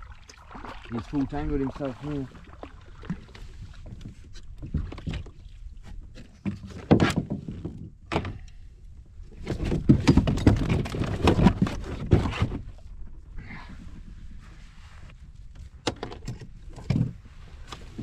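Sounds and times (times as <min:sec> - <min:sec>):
knocks and thuds on kayak hull: 0:02.6 - 0:08.5, 0:09.4 - 0:12.8.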